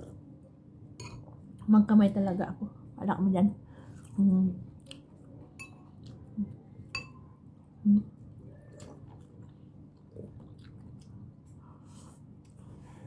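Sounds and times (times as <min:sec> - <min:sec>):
close chewing: 0:08.7 - 0:11.6.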